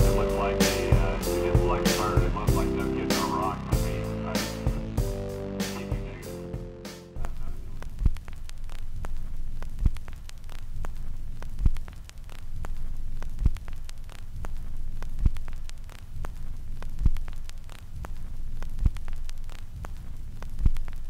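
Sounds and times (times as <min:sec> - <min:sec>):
low hum: 0:00.0 - 0:08.2
static crackle and clicks: 0:00.0 - 0:21.0.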